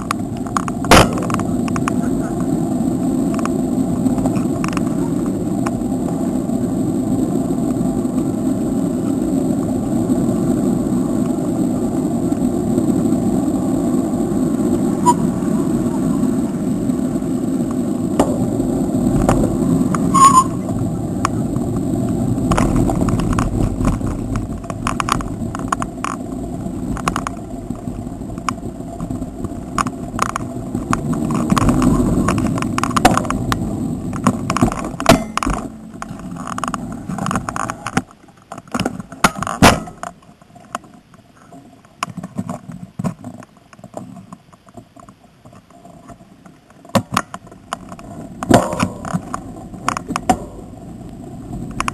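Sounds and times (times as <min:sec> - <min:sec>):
bicycle road and wind rumble: 0:00.0 - 0:51.9
bicycle rattling and clicking: 0:07.8 - 0:41.0, 0:41.8 - 0:51.9.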